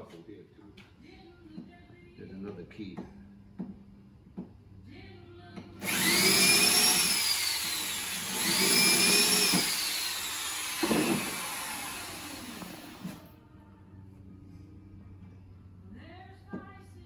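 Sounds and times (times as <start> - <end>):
electric drill boring wood: 5.8 - 13.3.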